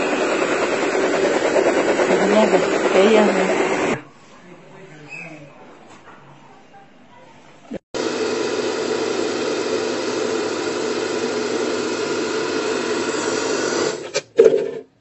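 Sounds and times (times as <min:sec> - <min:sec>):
hair dryer blowing: 0:00.0 - 0:04.0, 0:08.0 - 0:14.2.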